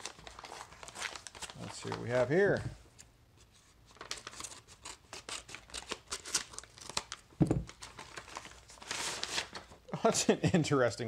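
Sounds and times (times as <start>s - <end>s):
paper crackling and crinkling: 0.0s - 2.6s, 3.5s - 9.9s
dull thump: 7.4s - 7.7s.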